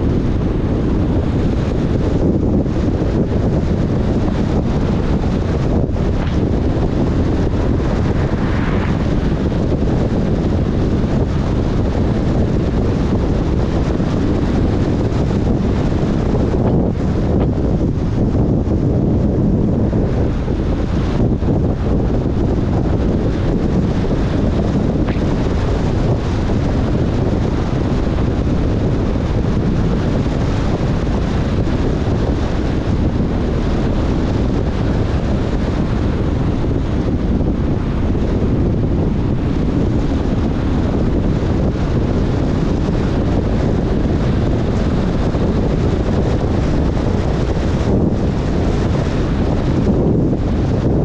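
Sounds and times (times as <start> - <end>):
wind buffeting microphone: 0.0 - 51.0
car driving on wet road: 0.1 - 18.6.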